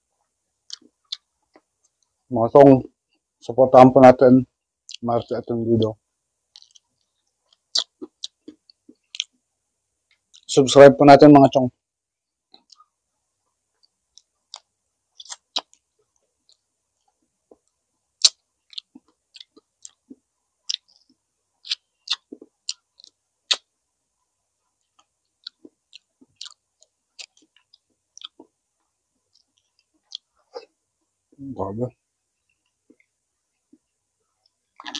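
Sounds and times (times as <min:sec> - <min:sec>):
person chewing food: 0:00.6 - 0:02.2, 0:06.5 - 0:09.5, 0:12.5 - 0:23.7, 0:24.6 - 0:31.4, 0:32.4 - 0:34.9.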